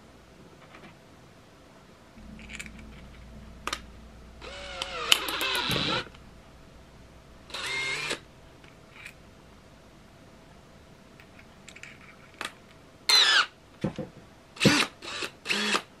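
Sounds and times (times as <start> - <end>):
drill motor whirring: 14.6 - 15.8.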